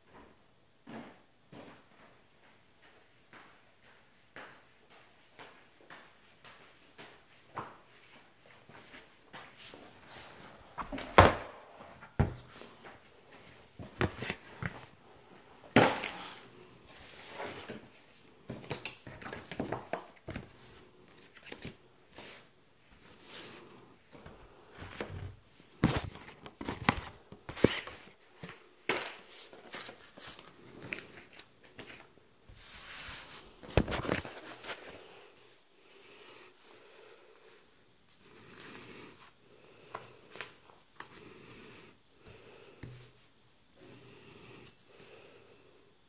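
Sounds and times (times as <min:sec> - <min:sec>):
paper and plastic rustling: 0:15.7 - 0:23.6, 0:24.8 - 0:35.1.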